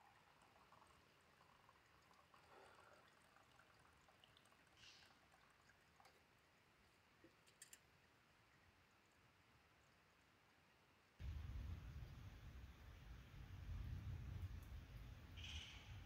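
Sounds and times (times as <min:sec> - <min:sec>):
faint background hiss: 0:00.0 - 0:16.0
small clicks: 0:07.2 - 0:07.9.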